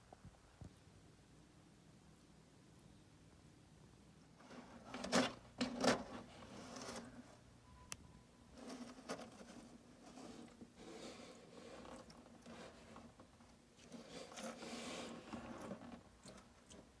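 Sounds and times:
claws scratching on cardboard: 8.6 - 16.9.

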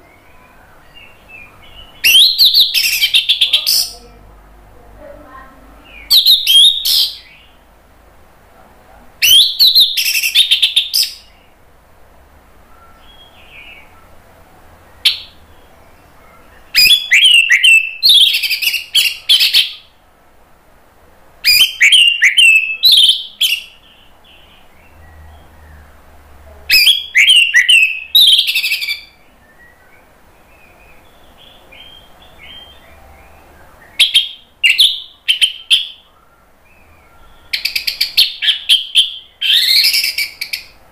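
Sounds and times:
thrush singing whistles and trills: 0.0 - 3.9, 6.0 - 7.4, 9.2 - 11.3, 16.7 - 19.9, 21.4 - 23.8, 26.8 - 40.8.

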